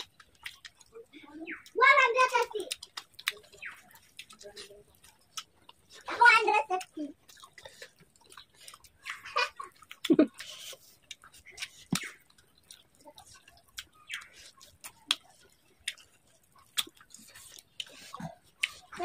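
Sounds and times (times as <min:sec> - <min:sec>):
fingers squishing rice: 0:00.0 - 0:00.9, 0:06.8 - 0:19.0
wet mouth smacks and chewing: 0:00.0 - 0:06.2, 0:06.8 - 0:19.0.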